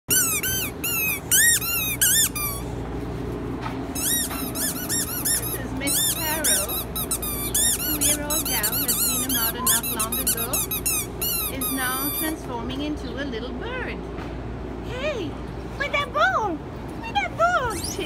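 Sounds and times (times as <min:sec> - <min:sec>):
dog chewing: 0:00.1 - 0:02.7, 0:03.9 - 0:11.6
squeaky toy squeaking: 0:00.1 - 0:02.7, 0:04.0 - 0:12.3.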